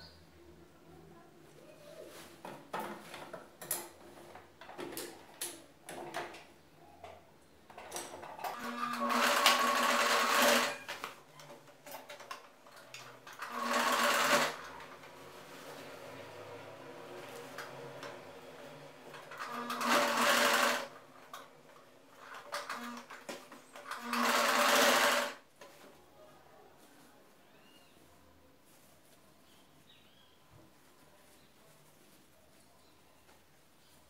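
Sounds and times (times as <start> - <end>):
sewing machine stitching: 7.8 - 11.1, 11.8 - 18.4, 19.0 - 21.4, 22.1 - 25.4.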